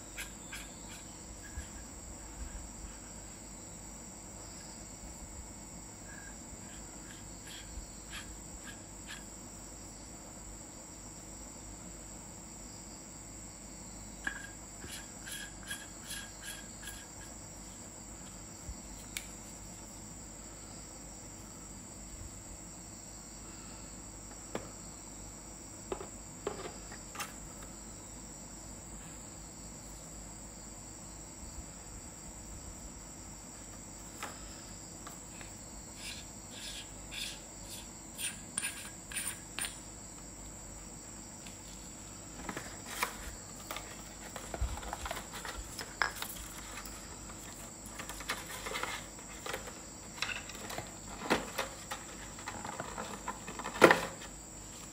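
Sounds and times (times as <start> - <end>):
cricket trilling: 0.0 - 54.9
flashlight and box handled: 42.4 - 54.1.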